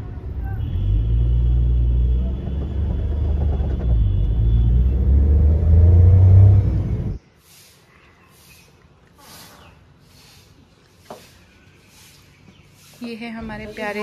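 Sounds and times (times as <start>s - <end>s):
road rumble: 0.0s - 14.0s
car engine accelerating: 1.0s - 7.2s.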